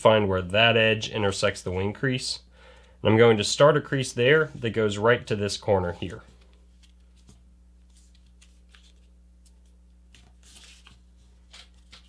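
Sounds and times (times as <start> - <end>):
steady low hum: 0.0 - 12.0
soft paper scrapes: 5.9 - 12.0
paper crinkling and folding: 6.1 - 12.0.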